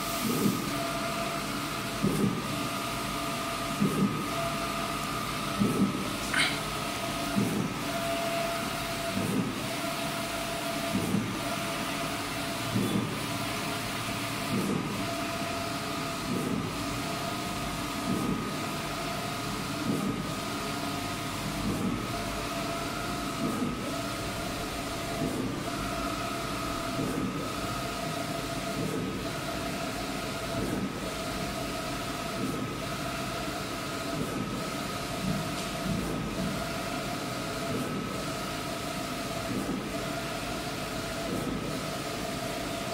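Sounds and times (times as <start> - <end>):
printer carriage whine: 0.0 - 42.9.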